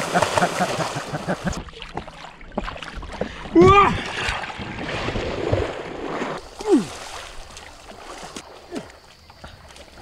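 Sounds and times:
water splashing around paddleboard: 0.0 - 10.0.

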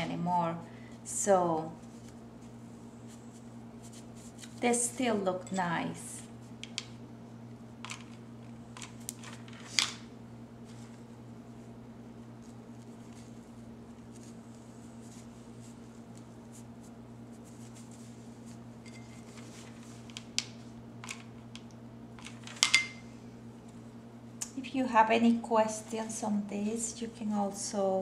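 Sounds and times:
steady low hum: 0.0 - 28.0
soft rustles and light clicks: 1.7 - 4.7, 12.3 - 22.6.

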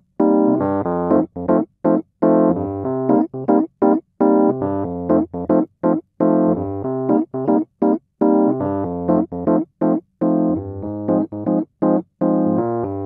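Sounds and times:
keyboard playing bouncy chords: 0.0 - 13.0.

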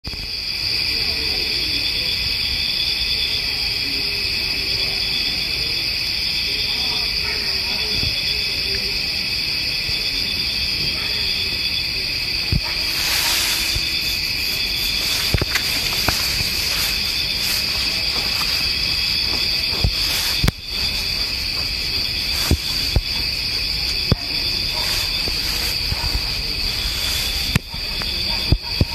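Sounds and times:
night insects chorus: 0.0 - 28.9.

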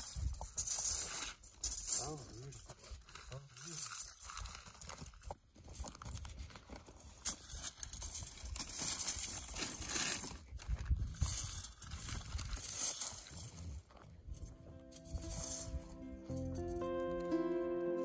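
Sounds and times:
metal rake scraping dirt and twigs: 14.4 - 17.0.

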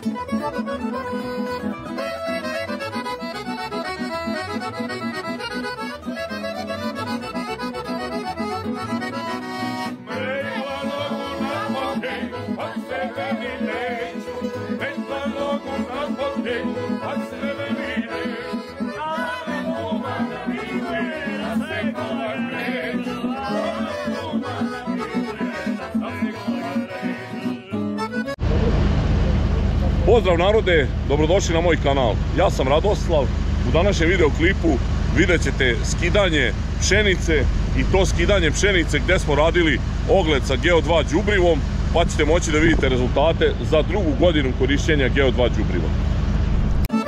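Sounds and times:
wavering lead melody: 0.0 - 29.3, 46.7 - 47.0
accordion folk tune: 0.0 - 47.0
pulsing bass beat: 33.6 - 46.9.

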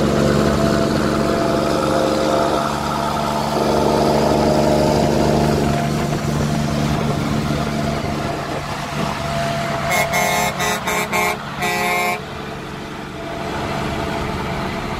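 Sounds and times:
heavy truck engine running: 0.0 - 14.9
truck air horn: 3.5 - 5.6, 9.4 - 12.3.

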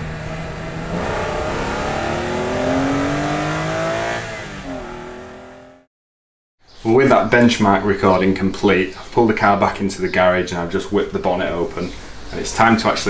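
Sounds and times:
car engine accelerating: 0.0 - 5.9.

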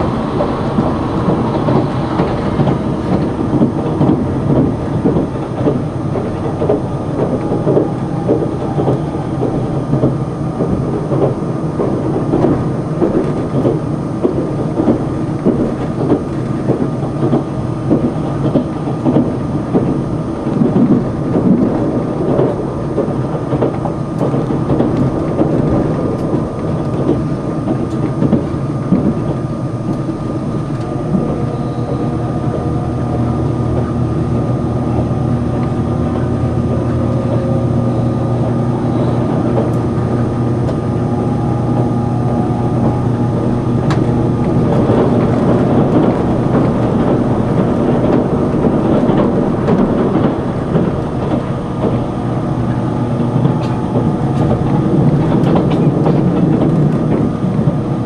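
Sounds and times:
train wheels rumbling on rails: 0.0 - 58.0
thin steady whine: 24.0 - 58.0.

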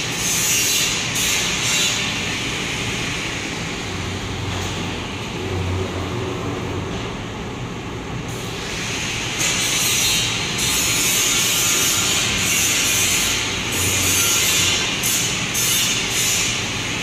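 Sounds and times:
printing machine whir and hiss: 8.3 - 17.0.

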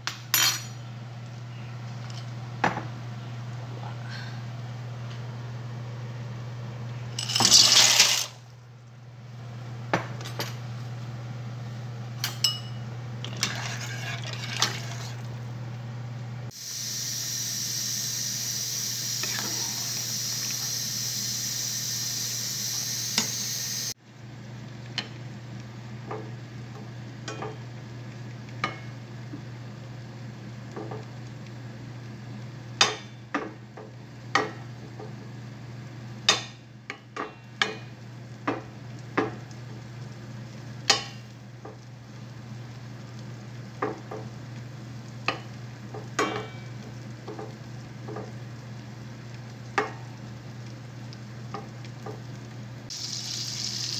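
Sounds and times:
butter sizzling in pan: 16.5 - 24.0, 37.9 - 53.9
loud hiss: 16.5 - 24.0.

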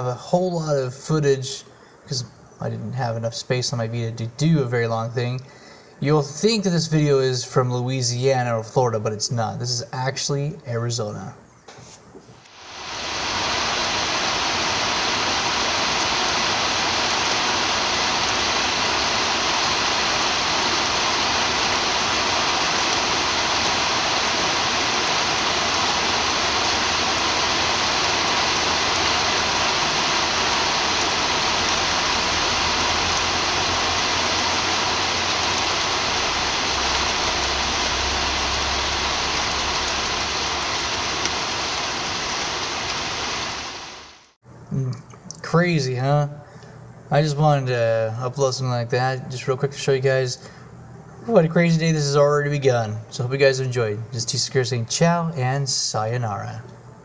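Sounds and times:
heavy rain on pavement and roof: 12.4 - 44.4.

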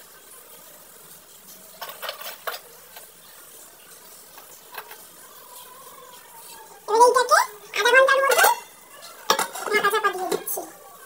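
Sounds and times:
utensil clinking against pot: 8.2 - 10.6.

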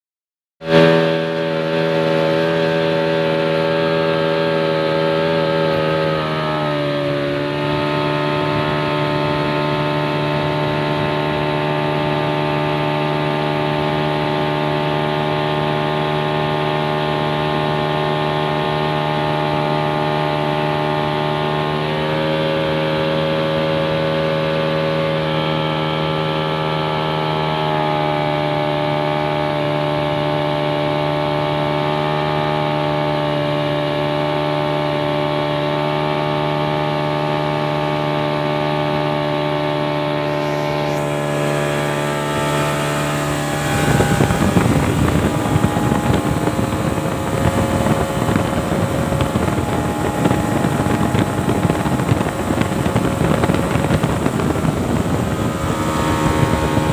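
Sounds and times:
outboard motor high revs: 0.6 - 56.9
water rushing past hull: 36.7 - 56.9.

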